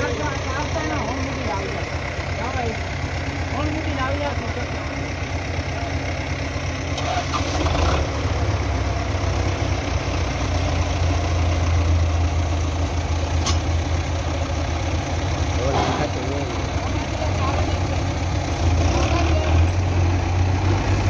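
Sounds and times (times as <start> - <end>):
tractor diesel engine running: 0.0 - 21.0
sharp click: 13.4 - 13.7.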